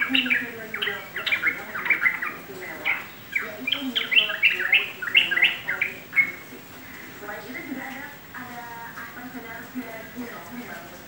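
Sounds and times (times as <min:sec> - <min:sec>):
bulbul singing: 0:00.0 - 0:07.2.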